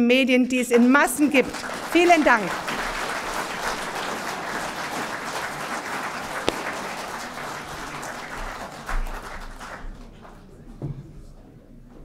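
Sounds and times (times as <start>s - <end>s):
audience applause: 1.4s - 10.4s.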